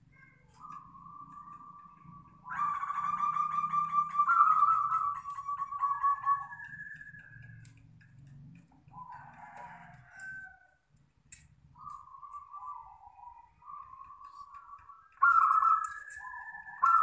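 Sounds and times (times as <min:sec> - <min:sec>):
birds calling: 0:00.0 - 0:07.8, 0:11.7 - 0:17.0.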